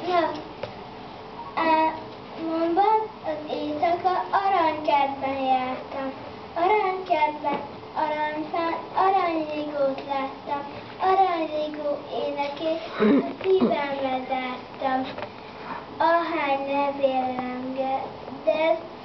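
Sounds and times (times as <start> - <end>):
young children singing together: 1.5 - 15.2.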